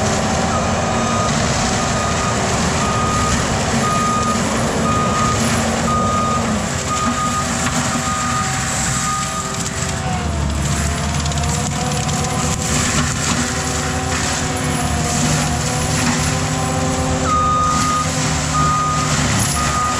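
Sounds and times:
diesel engine running: 0.0 - 19.9
mulcher head running: 0.0 - 19.9
reversing alarm beeping: 0.4 - 9.6, 17.2 - 19.9.

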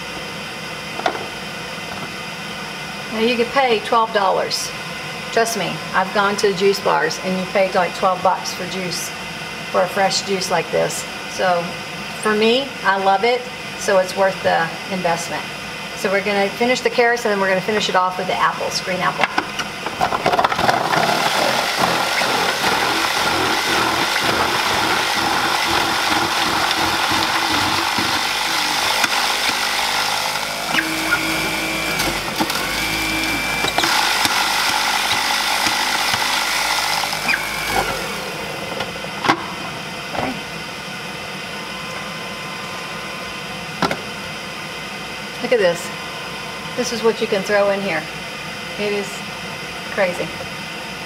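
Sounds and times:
juicer grinding: 19.8 - 39.0.

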